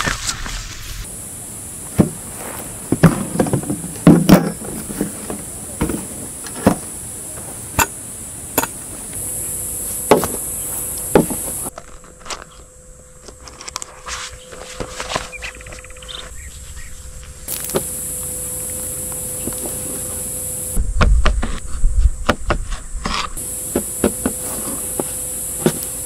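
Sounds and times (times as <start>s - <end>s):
insects buzzing: 1.0s - 11.8s, 14.0s - 20.8s, 23.4s - 26.0s.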